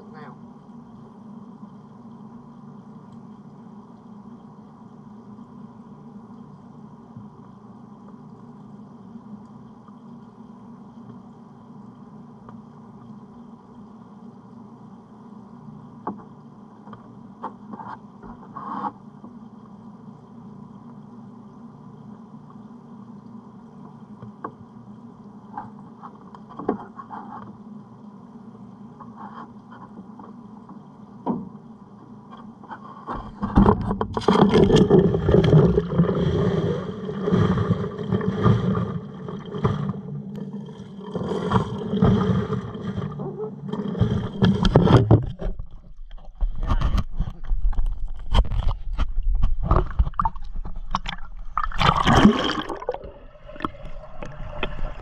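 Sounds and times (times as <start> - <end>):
steady low hum: 0.0 - 55.0
water splashing and sloshing: 32.3 - 55.0
knocks and scrapes: 32.7 - 36.4, 41.2 - 51.7.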